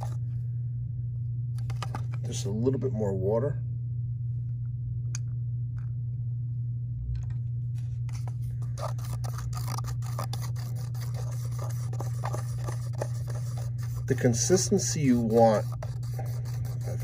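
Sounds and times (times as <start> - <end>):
steady low hum: 0.0 - 17.0
stick scraping plastic cup: 8.1 - 17.0.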